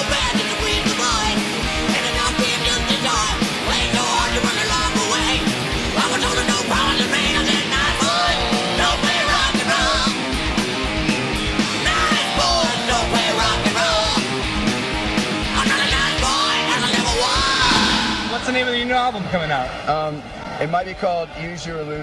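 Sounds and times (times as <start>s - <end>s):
person singing: 0.0s - 10.2s, 11.8s - 14.3s, 15.5s - 18.3s
rock music with drum beat: 0.0s - 18.6s.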